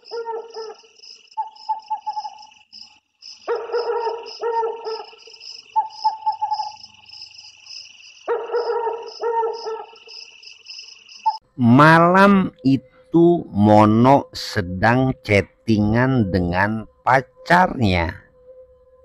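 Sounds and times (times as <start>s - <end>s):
dog barking: 0.0s - 2.2s, 3.4s - 5.2s, 5.8s - 6.8s, 8.2s - 10.0s
crickets chirring: 0.0s - 11.4s.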